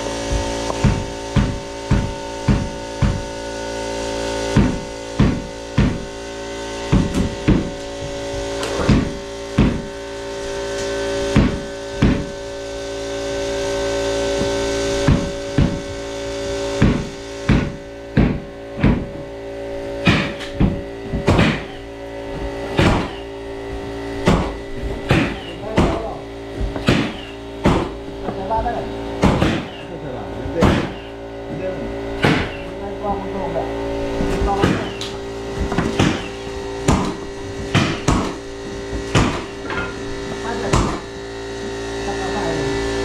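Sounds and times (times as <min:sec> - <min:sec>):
steady machine hum: 0:00.0 - 0:43.0
sharp knocks on wood: 0:00.3 - 0:03.3, 0:04.6 - 0:06.1, 0:06.9 - 0:09.9, 0:11.4 - 0:12.3, 0:14.4 - 0:15.9, 0:16.8 - 0:19.1, 0:20.0 - 0:21.8, 0:22.8 - 0:23.2, 0:24.2 - 0:28.4, 0:29.2 - 0:29.8, 0:30.6 - 0:31.1, 0:32.2 - 0:32.6, 0:34.4 - 0:39.9, 0:40.7 - 0:41.1.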